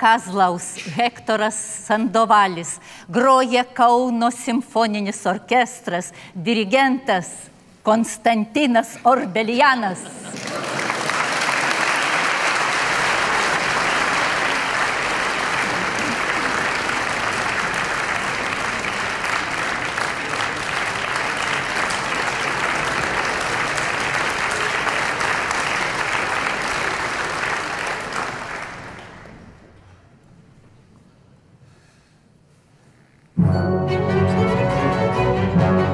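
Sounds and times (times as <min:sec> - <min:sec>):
audience applauding: 0:10.3 - 0:29.7.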